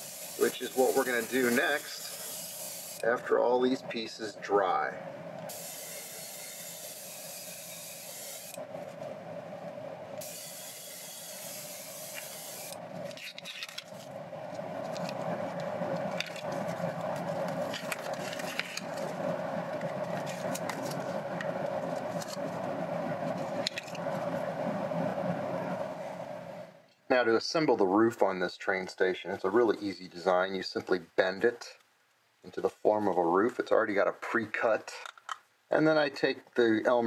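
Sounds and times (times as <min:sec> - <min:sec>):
airbrush spraying hiss: 0:00.0 - 0:03.0, 0:05.5 - 0:08.6, 0:10.2 - 0:12.8
rustling handling noise: 0:12.9 - 0:24.4.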